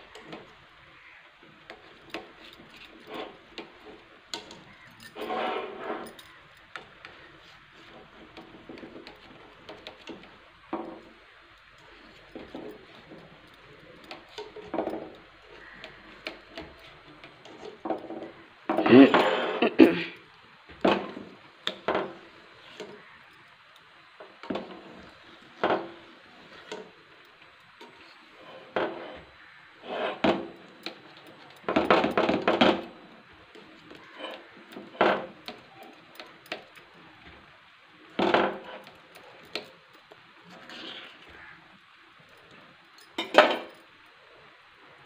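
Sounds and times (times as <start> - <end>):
knife scraping steel plate: 4.4 - 6.4, 29.8 - 30.3.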